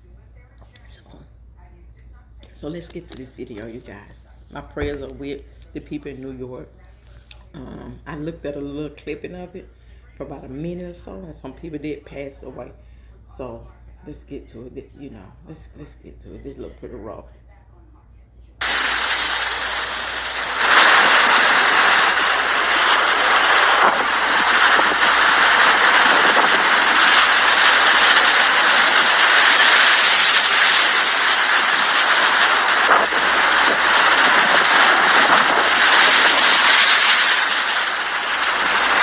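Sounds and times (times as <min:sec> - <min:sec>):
strong blizzard wind: 0:18.6 - 0:39.0.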